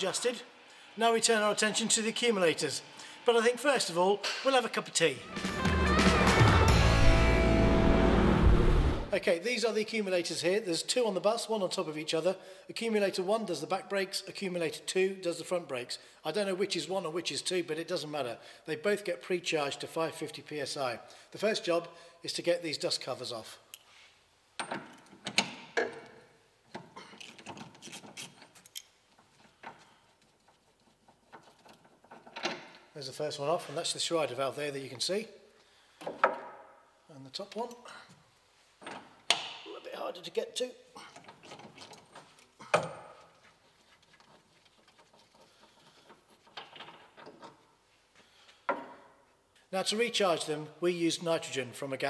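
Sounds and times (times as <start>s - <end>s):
hand tool clicking and scraping: 26.7s - 32.6s.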